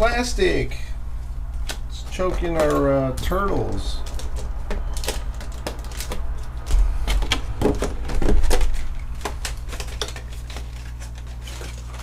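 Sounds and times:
plastic trays clicking and crackling: 1.6s - 12.0s.

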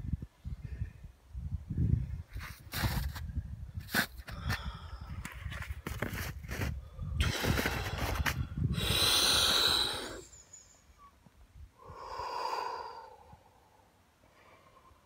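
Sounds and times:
man breathing forcefully: 7.0s - 10.3s, 11.8s - 15.0s.

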